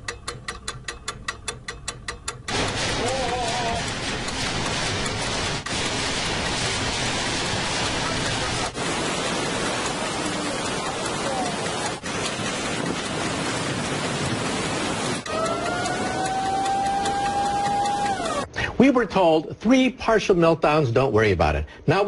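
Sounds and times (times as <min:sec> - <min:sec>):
floodwater rushing: 0:02.5 - 0:18.5.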